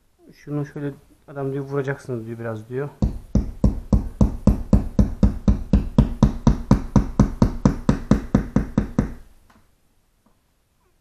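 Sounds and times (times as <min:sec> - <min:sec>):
hammer tapping: 0:03.0 - 0:09.2.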